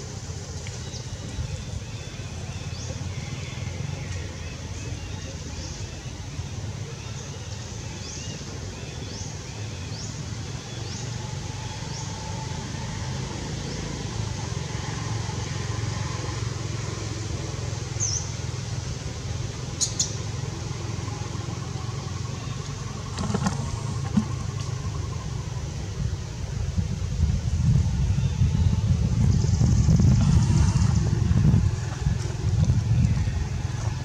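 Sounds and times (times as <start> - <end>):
low outdoor rumble: 0.0 - 34.0.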